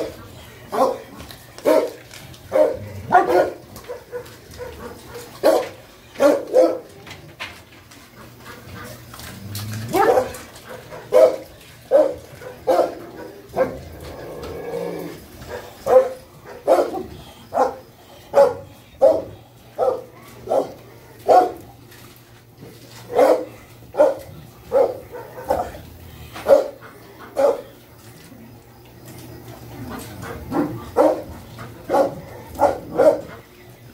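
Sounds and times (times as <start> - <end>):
dog barking: 0.7 - 6.9, 9.9 - 13.8, 15.4 - 21.6, 23.1 - 27.7, 30.5 - 33.4.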